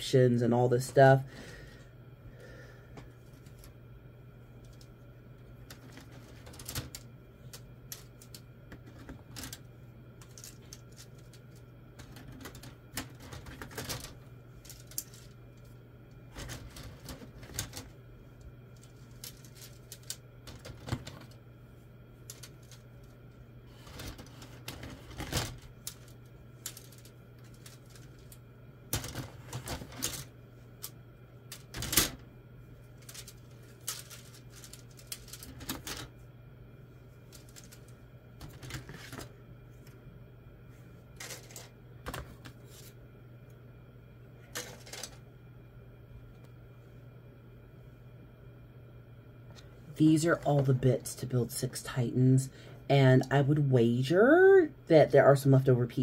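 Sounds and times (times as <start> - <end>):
faint low hum: 0.0 - 56.0
plastic pieces clicking and rattling: 5.7 - 9.6, 10.2 - 15.3, 16.3 - 17.9, 18.8 - 21.4, 22.3 - 22.8, 23.8 - 30.9, 31.5 - 32.2, 33.0 - 36.1, 41.2 - 42.2, 44.6 - 45.2.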